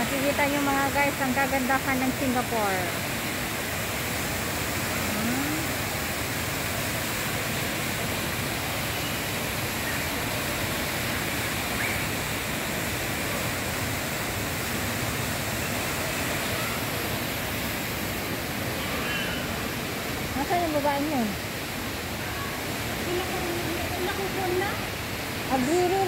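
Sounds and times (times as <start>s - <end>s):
waterfall pouring into pool: 2.2s - 20.5s.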